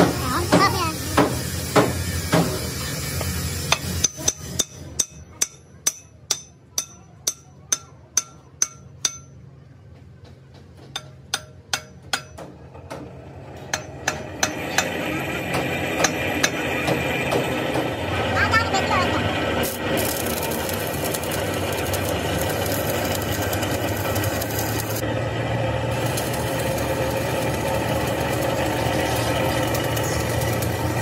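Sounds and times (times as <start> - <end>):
hammer striking metal: 0.0 - 2.6, 3.7 - 9.4, 10.8 - 18.0.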